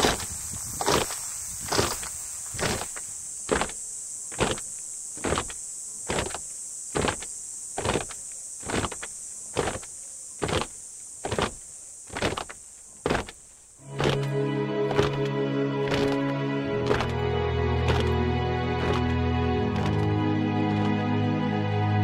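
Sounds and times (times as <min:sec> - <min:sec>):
short swishing crunches: 0:00.0 - 0:17.2
steady high-pitched hiss: 0:00.0 - 0:22.0.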